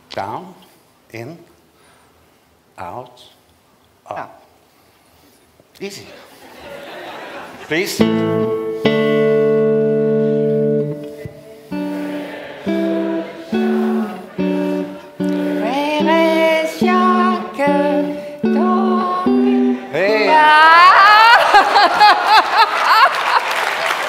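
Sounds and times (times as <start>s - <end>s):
guitar playing chords: 7.9s - 20.7s
voices singing along: 11.2s - 22.3s.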